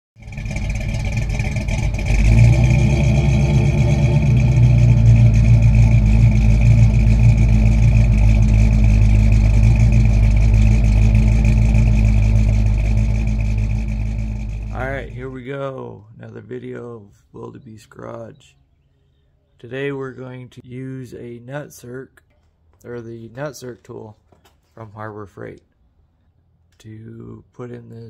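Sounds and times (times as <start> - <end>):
vehicle engine revving: 0.2 - 15.5
steady high whine: 0.2 - 16.5.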